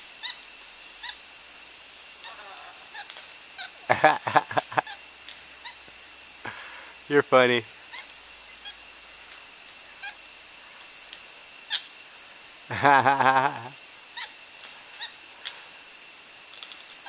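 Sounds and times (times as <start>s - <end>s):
high-pitched insect drone: 0.0s - 17.0s
faint chirps and clicks: 2.7s - 3.4s, 4.6s - 6.0s, 7.9s - 9.5s, 11.0s - 11.9s, 14.2s - 15.7s, 16.5s - 17.0s.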